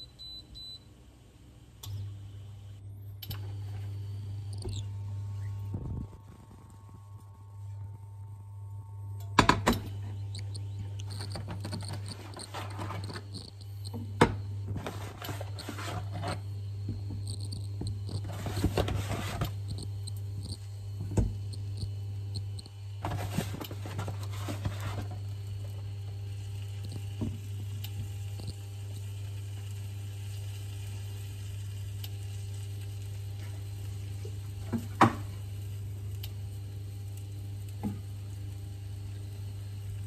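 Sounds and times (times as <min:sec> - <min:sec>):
steady low hum: 0:00.0 - 0:40.0
fish sizzling in a frying pan: 0:23.9 - 0:40.0.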